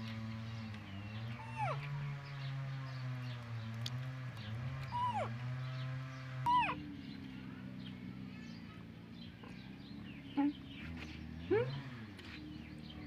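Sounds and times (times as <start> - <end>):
baby monkey squeaks: 6.5 - 6.8.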